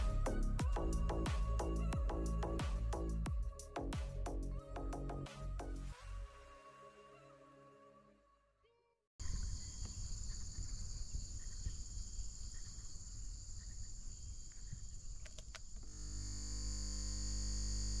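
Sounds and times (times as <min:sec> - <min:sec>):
high-pitched insect buzzing: 0:15.9 - 0:18.0.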